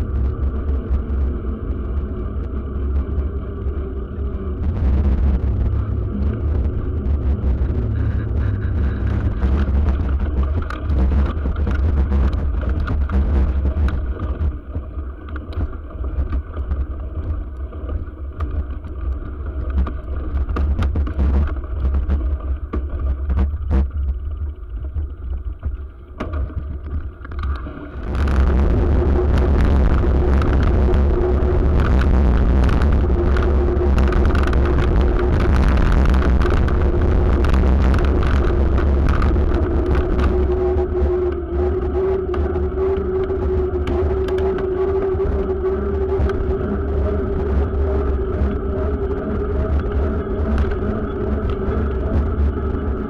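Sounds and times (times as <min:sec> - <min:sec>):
wind and rolling rumble: 0:00.0 - 0:53.0
clicks and knocks from bumps: 0:04.6 - 0:46.6.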